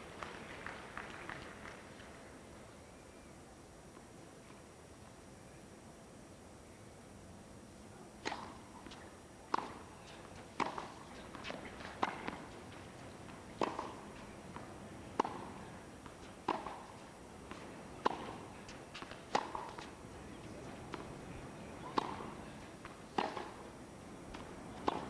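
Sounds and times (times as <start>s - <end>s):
tennis ball hit by rackets: 8.2s - 19.9s, 21.8s - 23.6s, 24.3s - 25.0s.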